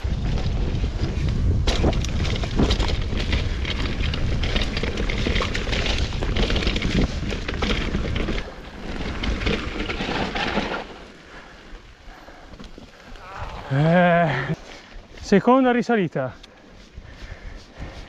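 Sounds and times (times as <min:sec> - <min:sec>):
wind buffeting microphone: 0:00.0 - 0:10.0, 0:16.6 - 0:18.0
bike rattling: 0:00.0 - 0:18.0.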